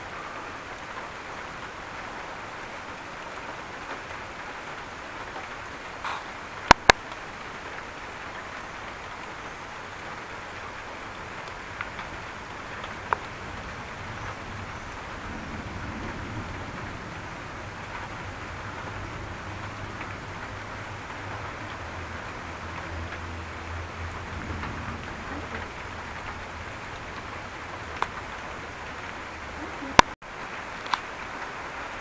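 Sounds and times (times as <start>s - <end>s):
thunder rumbling: 0.0s - 30.6s
heavy rain falling: 0.0s - 32.0s
sharp clicks: 6.0s - 7.2s.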